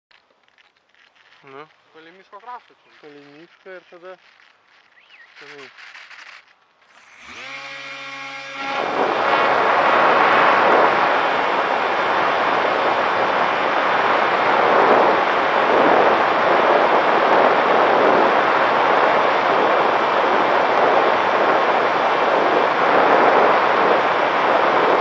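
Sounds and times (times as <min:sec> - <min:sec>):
motor and propeller running: 0:05.9 - 0:25.0
rush of airflow: 0:08.6 - 0:25.0.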